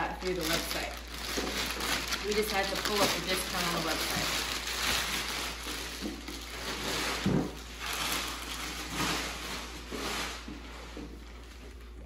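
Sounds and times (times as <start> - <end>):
handling rustling and knocks: 5.8 - 11.8.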